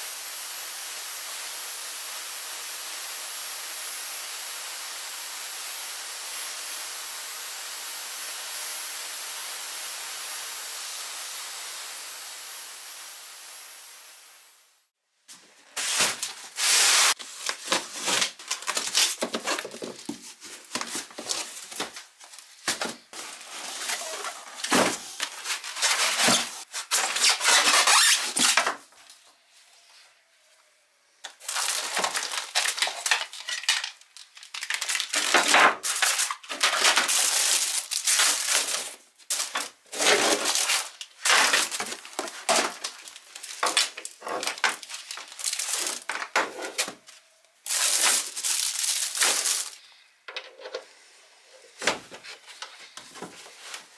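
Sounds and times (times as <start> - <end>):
cardboard and plastic packaging rustling: 15.3 - 29.2, 31.3 - 49.8, 51.7 - 53.9.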